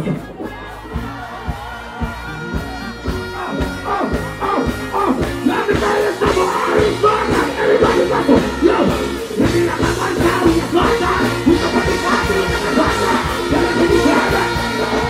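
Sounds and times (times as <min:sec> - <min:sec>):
dancehall music with heavy bass: 0:00.0 - 0:15.0
person rapping over a beat: 0:03.5 - 0:15.0.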